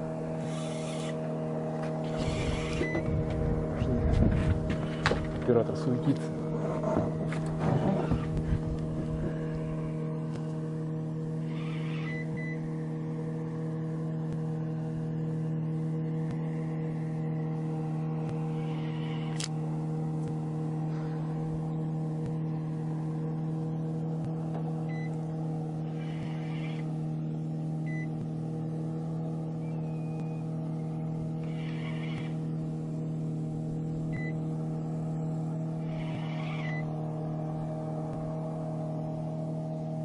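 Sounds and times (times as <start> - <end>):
boat motor humming: 0.0 - 40.0
sharp click: 19.3 - 19.6.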